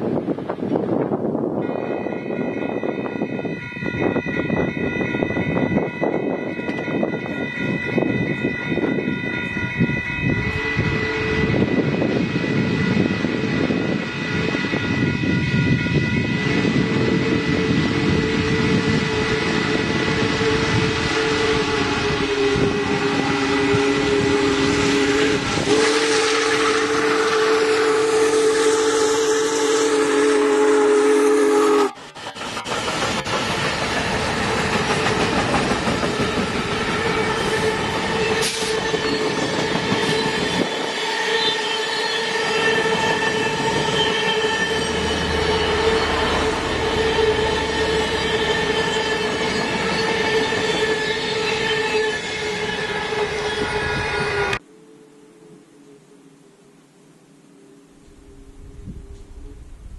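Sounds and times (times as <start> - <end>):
wind noise: 0.0 - 41.2, 42.3 - 54.6, 57.9 - 59.9
steady high ringing: 1.6 - 25.5
steam locomotive whistle blowing: 1.6 - 33.9, 34.9 - 55.4.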